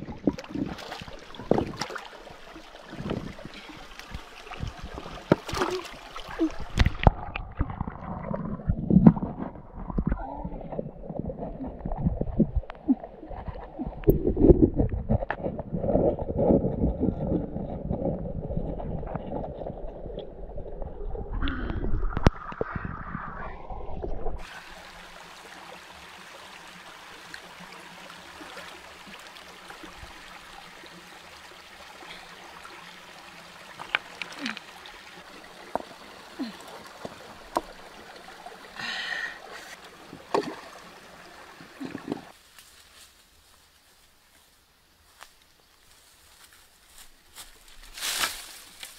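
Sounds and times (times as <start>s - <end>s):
water rush: 0.0s - 14.4s, 18.7s - 42.4s
stream hiss: 0.4s - 7.1s, 24.4s - 48.9s.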